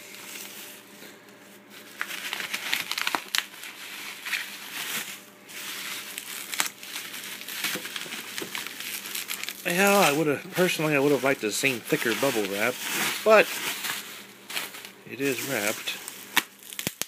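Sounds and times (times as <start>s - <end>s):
bubble wrap crinkling: 0.0s - 17.0s.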